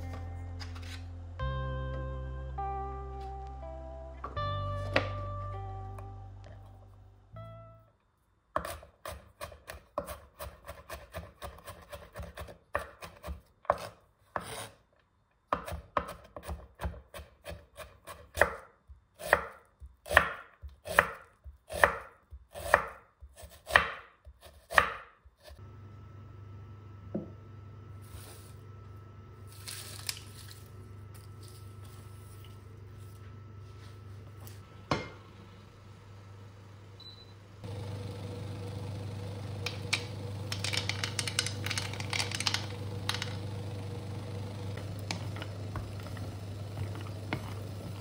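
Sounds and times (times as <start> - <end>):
knife chopping on wooden board: 8.6 - 14.7, 15.5 - 25.2
steady low hum: 25.6 - 48.0.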